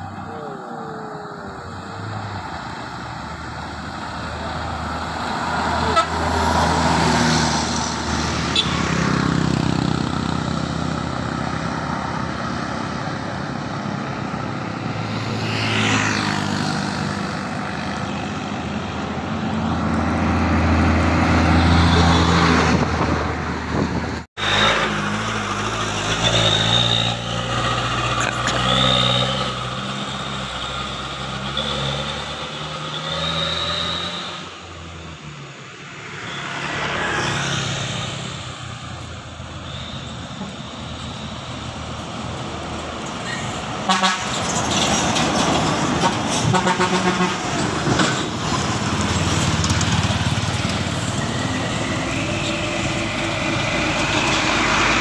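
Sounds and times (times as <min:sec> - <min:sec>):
buses and trucks passing: 0:00.0 - 0:55.0
vehicle horn toot: 0:08.5 - 0:09.0, 0:43.9 - 0:44.4, 0:46.4 - 0:47.4
truck diesel engine pulling away: 0:19.5 - 0:34.4, 0:47.4 - 0:55.0.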